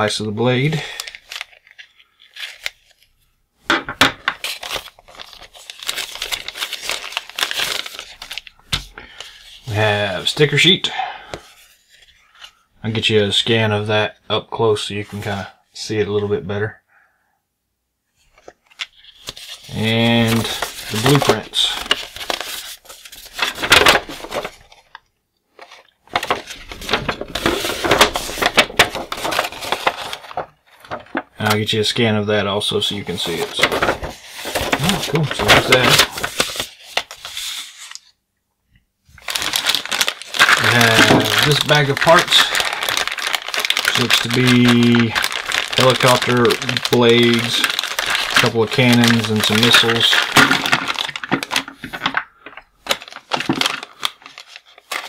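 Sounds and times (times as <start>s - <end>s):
plastic bag crinkling: 0.7s - 3.2s, 4.2s - 10.6s, 18.3s - 31.8s, 32.7s - 38.1s, 39.1s - 55.0s
paper sheets sliding: 18.8s - 24.8s, 25.6s - 31.3s, 32.8s - 38.1s.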